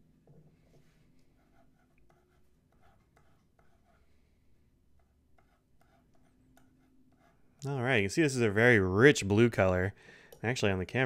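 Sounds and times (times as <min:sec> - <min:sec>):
pen nib scratching paper: 0:01.4 - 0:04.0, 0:05.0 - 0:07.4.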